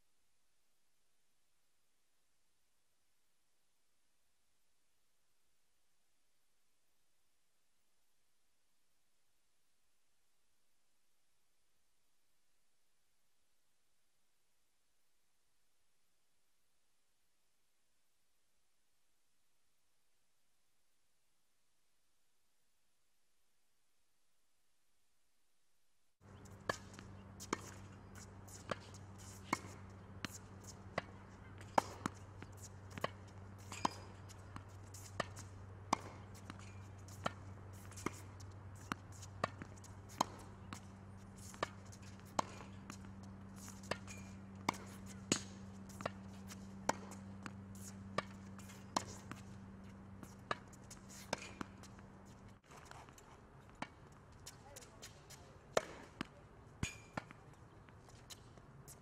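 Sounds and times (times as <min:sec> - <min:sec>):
steady low hum: 0:26.2 - 0:54.3
tennis balls struck by racket: 0:26.2 - 0:59.0
balls bouncing on hard court: 0:26.3 - 0:58.4.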